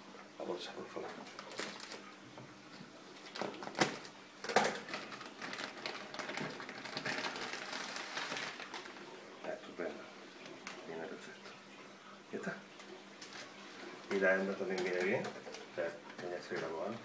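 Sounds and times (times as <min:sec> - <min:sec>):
plastic bag crinkling: 0:01.2 - 0:02.1, 0:03.2 - 0:09.5.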